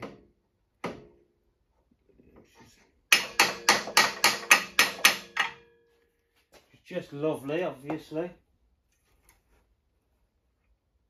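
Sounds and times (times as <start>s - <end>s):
hammer striking metal: 3.1s - 5.8s.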